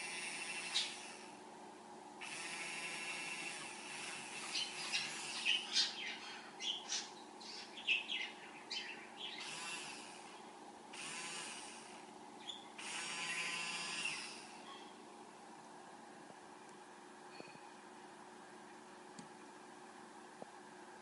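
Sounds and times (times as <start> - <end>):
small electric motor whine: 0.0 - 1.4, 2.2 - 6.2, 9.2 - 14.7.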